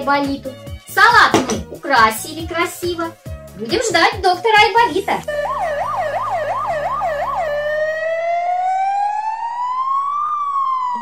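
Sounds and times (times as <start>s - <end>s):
electronic toy siren wailing: 5.3s - 11.0s.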